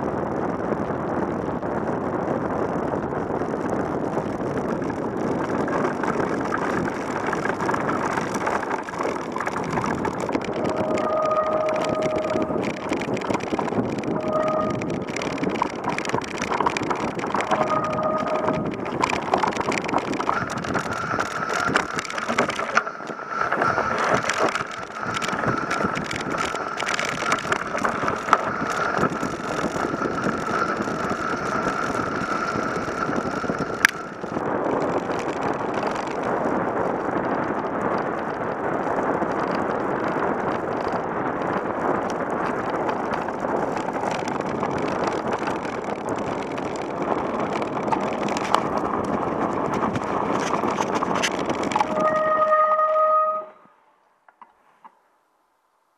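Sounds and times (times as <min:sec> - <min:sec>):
wind on microphone: 0:00.0 - 0:53.7
bike rattling and knocking: 0:02.6 - 0:53.5
steady high whine: 0:04.0 - 0:36.5
smooth rushing sound: 0:09.7 - 0:22.0.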